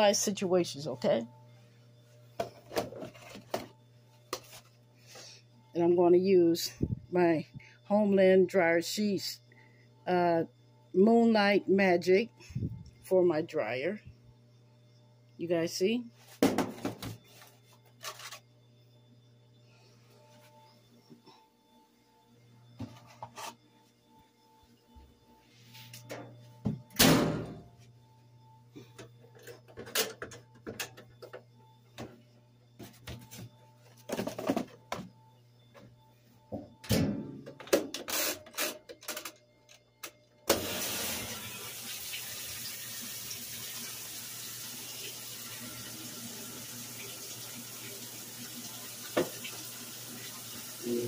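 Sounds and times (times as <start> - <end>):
washing machine filling with water: 40.5 - 51.0.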